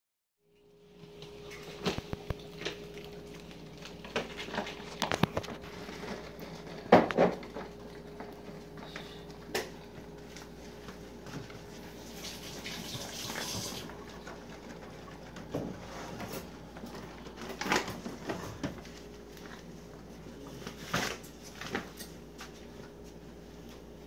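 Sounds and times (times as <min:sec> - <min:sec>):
faint steady hum: 0:00.4 - 0:24.0
plastic bag crinkling: 0:01.4 - 0:09.4.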